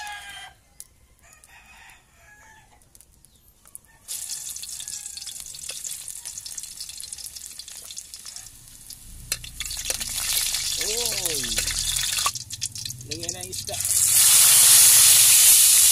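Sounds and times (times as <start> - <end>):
rooster crowing faintly: 0.0 - 2.9, 3.6 - 7.6, 8.2 - 11.5
garlic sizzling in hot oil: 4.1 - 15.9.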